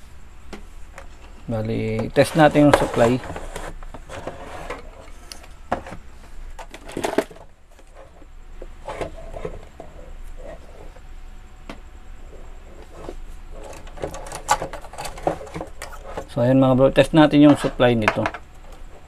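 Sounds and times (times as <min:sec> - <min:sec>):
low background hum: 0:00.0 - 0:19.0
handling clicks and knocks: 0:17.4 - 0:18.9.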